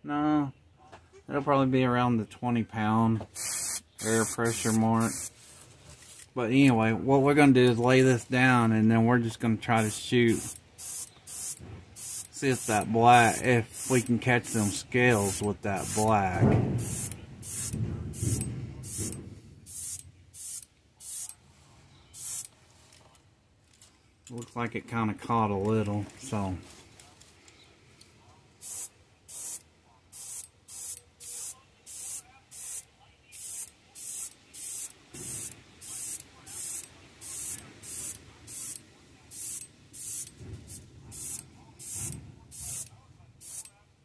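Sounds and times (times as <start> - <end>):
airbrush spraying hissing bursts: 3.3 - 5.4, 9.8 - 16.2, 16.8 - 21.3, 22.2 - 22.5, 28.6 - 43.7.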